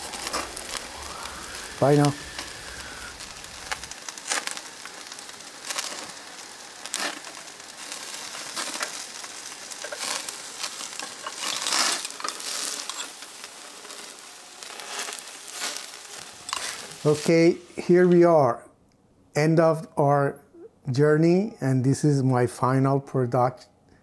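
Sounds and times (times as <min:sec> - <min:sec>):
crackles and pops: 0:00.0 - 0:17.8
skewers sizzling over charcoal: 0:00.0 - 0:18.3.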